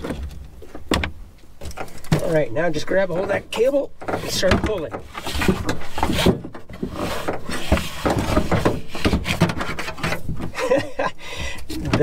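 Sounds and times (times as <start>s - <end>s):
cable dragging and scraping: 3.1s - 10.4s.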